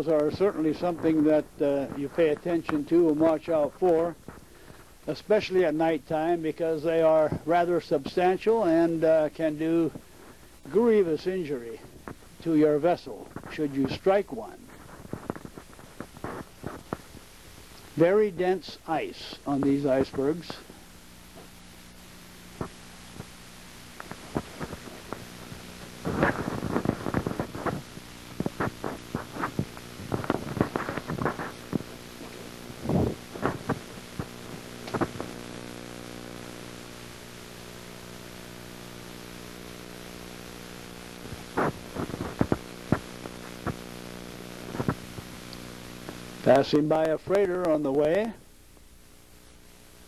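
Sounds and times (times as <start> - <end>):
electrical hum: 0.0 - 50.0
clicks and short crackles: 14.4 - 18.0, 21.3 - 36.4, 41.0 - 48.9.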